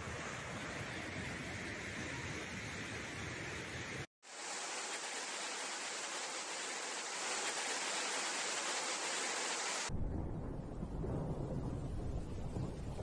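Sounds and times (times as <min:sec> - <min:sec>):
heavy rain hissing: 0:00.0 - 0:09.9
floodwater rushing: 0:04.2 - 0:09.9.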